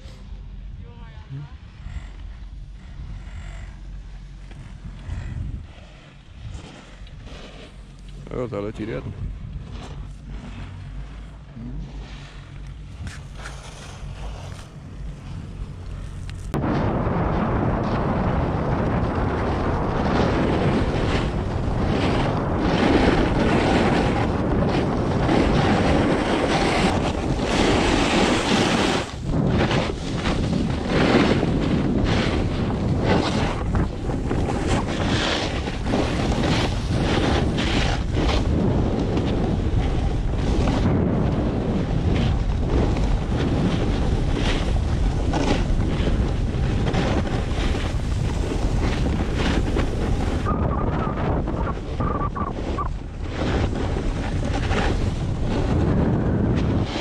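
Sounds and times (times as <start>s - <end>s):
wind rushing over microphone: 0.0s - 57.0s
snowboard edges scraping snow: 5.2s - 8.2s, 12.0s - 16.5s, 19.4s - 57.0s.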